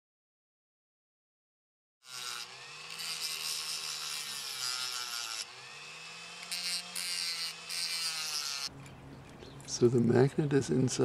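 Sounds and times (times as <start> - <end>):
rotary tool grinding plastic: 2.0 - 8.7.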